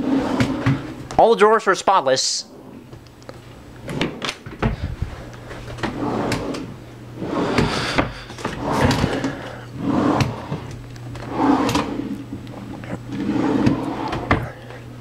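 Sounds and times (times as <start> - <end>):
drawers sliding: 0.0 - 1.1, 3.8 - 14.7.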